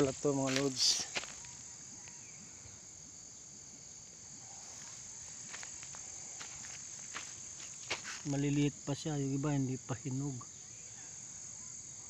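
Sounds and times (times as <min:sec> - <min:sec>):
high-pitched insect chorus: 0:00.0 - 0:12.0.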